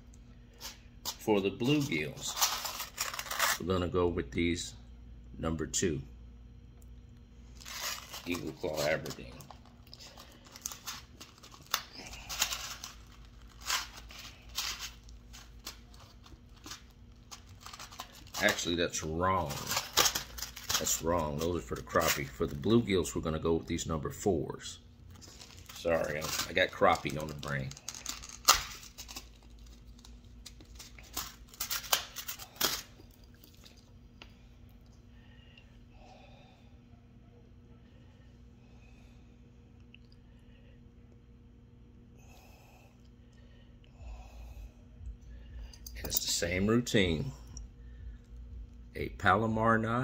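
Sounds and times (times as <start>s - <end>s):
packaging crinkling: 0.5s - 3.6s, 7.5s - 23.1s, 25.0s - 33.9s.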